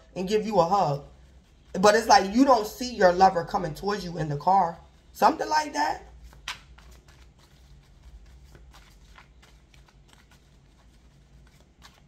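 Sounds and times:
cards being shuffled: 0:06.1 - 0:12.0.

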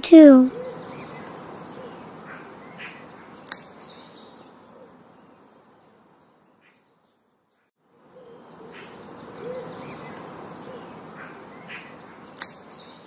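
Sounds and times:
bird chirps: 0:00.5 - 0:07.2
sharp click: 0:03.4 - 0:03.7, 0:12.4 - 0:12.6.

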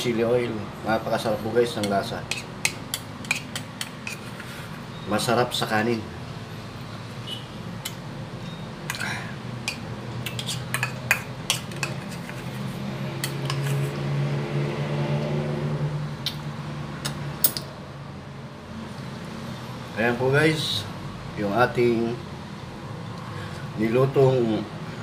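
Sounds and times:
metal spoon clinking on a dish: 0:01.8 - 0:04.3, 0:08.9 - 0:12.3.

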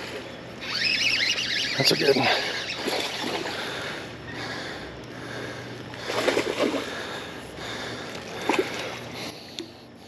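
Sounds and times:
water splashing and sloshing: 0:00.0 - 0:09.8.

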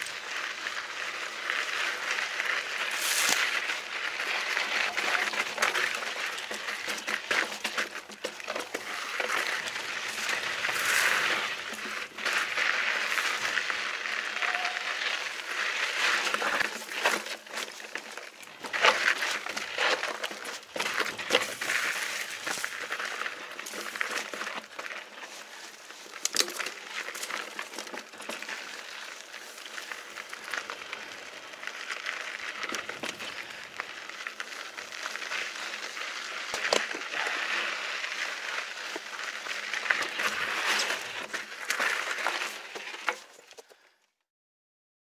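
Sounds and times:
bike tyres crunching on gritty rock: 0:00.0 - 0:44.0
bike knocking and rattling: 0:01.5 - 0:43.8.

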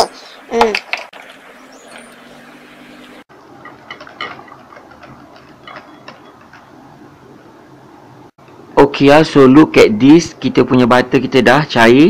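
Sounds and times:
batter being stirred: 0:03.4 - 0:07.1.

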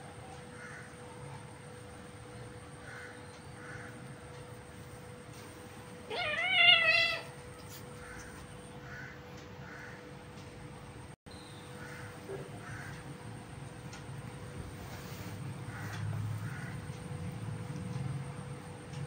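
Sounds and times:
kitten meowing: 0:06.1 - 0:07.3.

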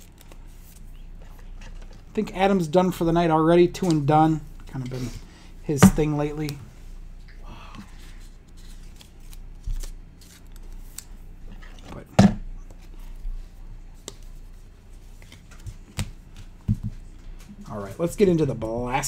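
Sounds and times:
card tapping on table: 0:05.8 - 0:06.1
cards clicking and rustling: 0:08.6 - 0:11.2.

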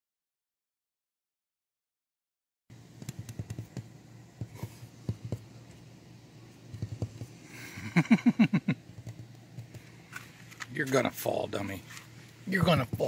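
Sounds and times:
cat clicks and taps: 0:03.0 - 0:03.9.

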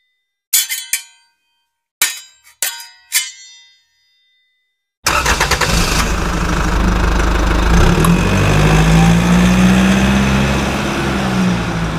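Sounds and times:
vehicle engine starting and running: 0:05.0 - 0:11.9.

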